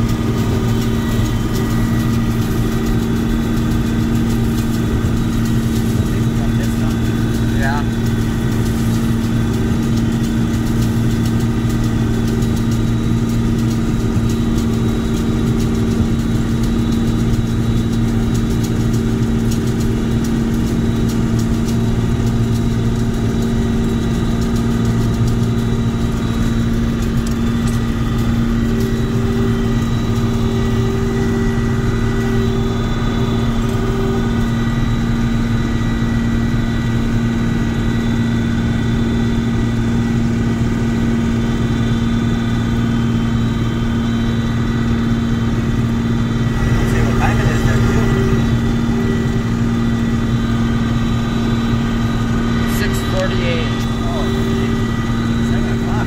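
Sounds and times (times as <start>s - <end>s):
combine harvester engine drone: 0.0s - 56.0s
higher machine tone: 26.8s - 36.5s, 45.6s - 56.0s.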